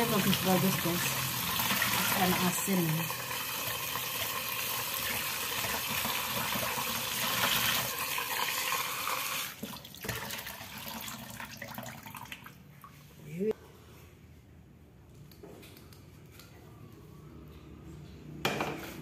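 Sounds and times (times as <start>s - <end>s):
tap water splashing into sink: 9.5s - 12.5s.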